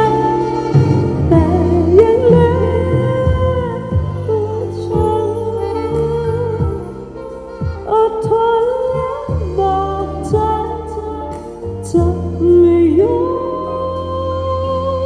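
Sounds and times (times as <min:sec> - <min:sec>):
bass guitar: 0:00.0 - 0:15.0
drums: 0:00.0 - 0:15.0
keyboard: 0:00.0 - 0:15.0
woman singing: 0:00.0 - 0:15.0.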